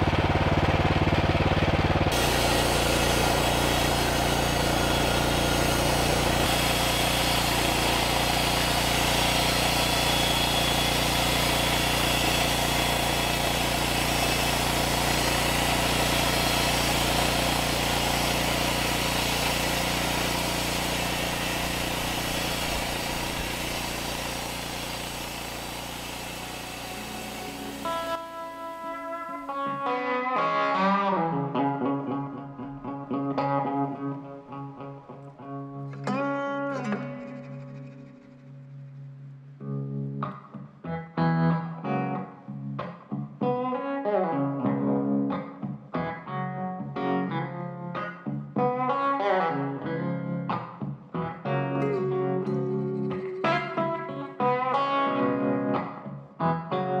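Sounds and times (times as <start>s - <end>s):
bandsaw mill cutting log: 0.0s - 29.8s.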